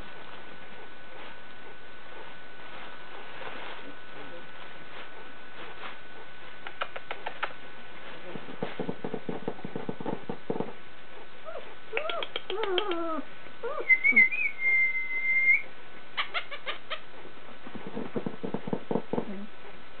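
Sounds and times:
puppies whimpering and yelping: 11.4 - 14.5.

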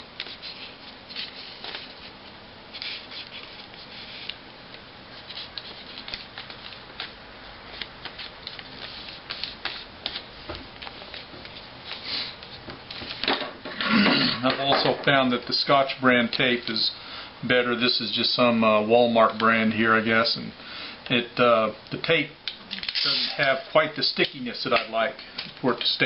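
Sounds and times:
fingers rubbing paper folds: 0.2 - 4.4, 5.1 - 12.5
paper rustling and crackling: 0.2 - 4.4, 5.1 - 13.3.

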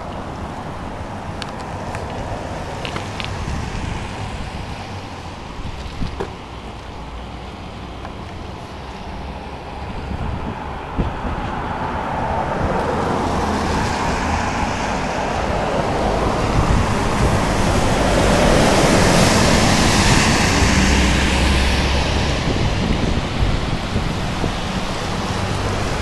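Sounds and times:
road traffic rush: 0.0 - 26.0
car passing: 6.5 - 26.0.

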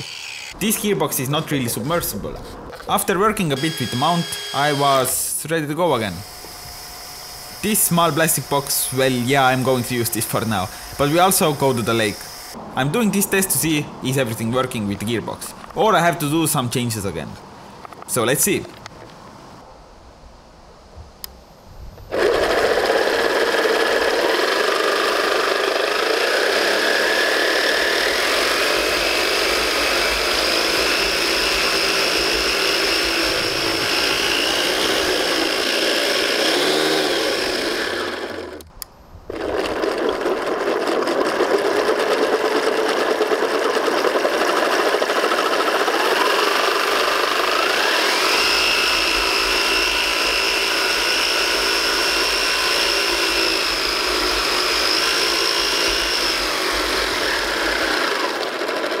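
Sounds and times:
gearbox whirr and gear whine: 0.0 - 0.9, 2.7 - 5.2, 5.9 - 12.6, 21.2 - 59.0.

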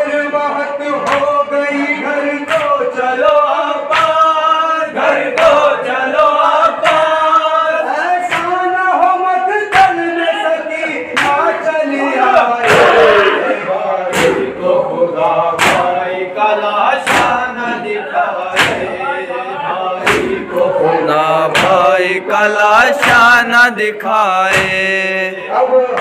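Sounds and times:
men chanting in unison: 0.0 - 26.0
chest-beating slaps: 12.6 - 14.5, 15.6 - 16.0, 17.0 - 17.5, 18.5 - 19.0, 20.0 - 20.7, 21.5 - 21.9, 23.0 - 23.4.

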